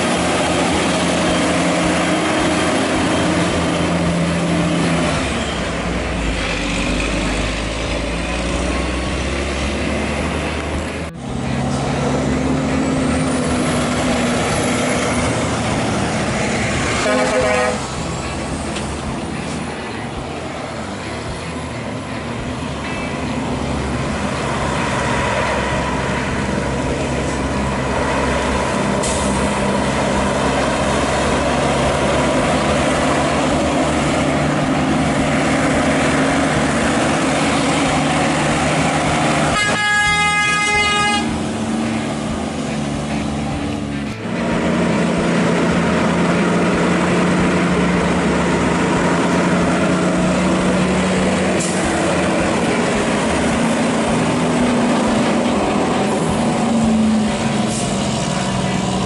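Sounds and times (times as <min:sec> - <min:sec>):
diesel trucks climbing: 0:00.0 - 0:59.0
truck horn: 0:16.4 - 0:18.3, 0:35.6 - 0:42.4.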